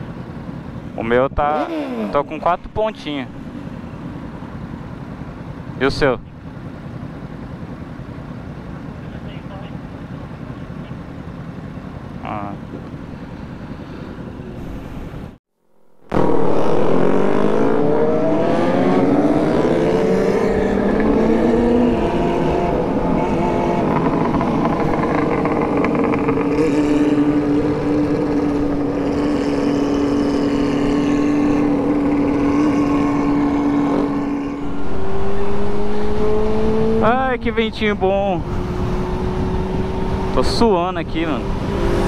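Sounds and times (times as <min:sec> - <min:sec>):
motorcycle engine revving: 0:00.0 - 0:14.6, 0:16.0 - 0:42.0
wind rushing over microphone: 0:31.6 - 0:40.4.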